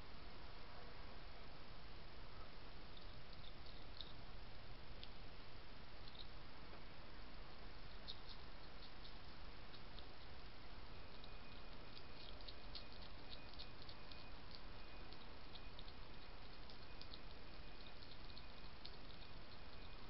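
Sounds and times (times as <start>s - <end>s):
hedgehog crunching biscuits: 7.8s - 20.0s.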